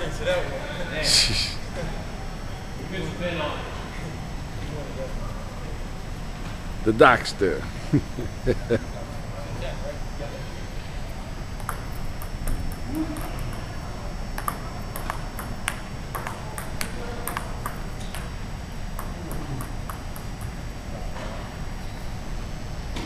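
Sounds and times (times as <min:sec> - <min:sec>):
table tennis ball clicking: 0:14.4 - 0:18.3.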